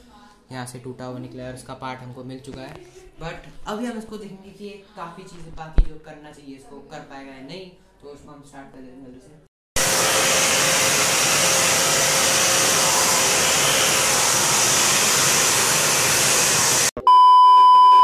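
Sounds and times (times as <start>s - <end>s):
vacuum cleaner running: 9.8s - 17.0s
high test-tone beep: 17.0s - 18.0s.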